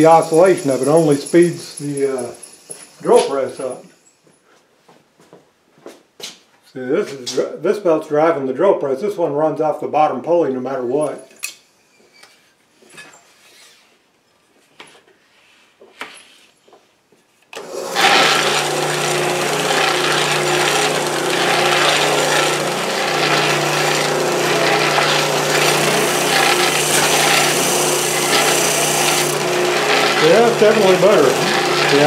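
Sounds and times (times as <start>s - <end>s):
drum sander running: 0.0s - 3.8s, 17.6s - 32.0s
wood being sanded: 0.0s - 3.8s, 17.8s - 32.0s.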